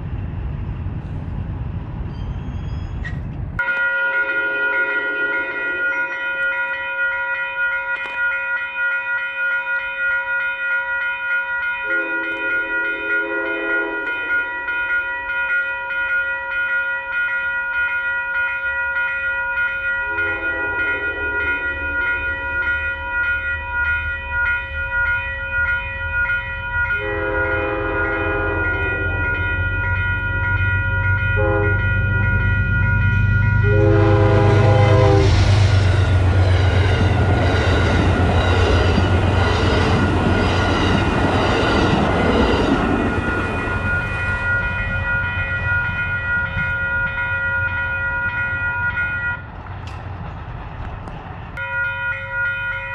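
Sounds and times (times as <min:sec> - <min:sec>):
train wheel noise: 0:00.0 - 0:06.9, 0:20.0 - 0:52.9
train passing with rumble: 0:00.0 - 0:07.4, 0:11.8 - 0:52.9
train horn: 0:04.1 - 0:06.0, 0:11.8 - 0:14.4, 0:20.0 - 0:22.2, 0:26.9 - 0:29.6, 0:31.3 - 0:40.1.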